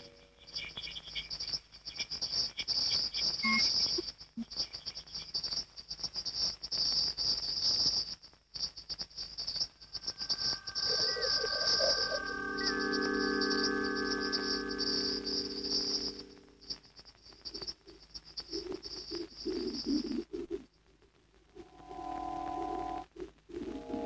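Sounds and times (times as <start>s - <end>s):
high-pitched electronic chirping: 0.0s - 5.4s, 9.2s - 16.9s, 23.6s - 24.0s
steady electronic tones: 9.7s - 16.8s, 21.6s - 24.0s.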